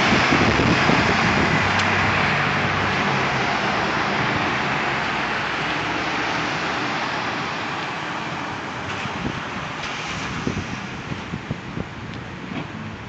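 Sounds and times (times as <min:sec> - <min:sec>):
trucks driving past: 0:00.0 - 0:13.0.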